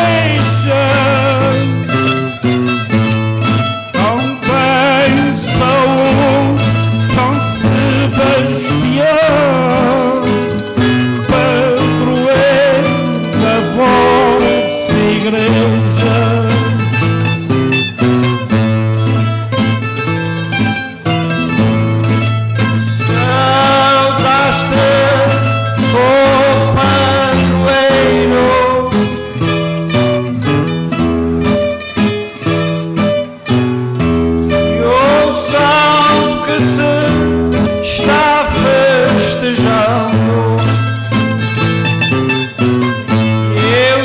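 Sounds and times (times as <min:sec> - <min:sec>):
man singing: 0:00.0 - 0:02.4, 0:03.6 - 0:17.0, 0:22.6 - 0:29.6, 0:34.5 - 0:41.3, 0:43.1 - 0:44.0
acoustic guitar and plucked strings: 0:00.0 - 0:44.0.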